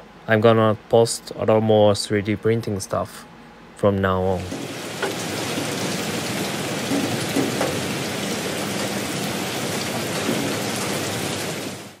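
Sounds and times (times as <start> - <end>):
rain-like hiss: 4.3 - 12.0.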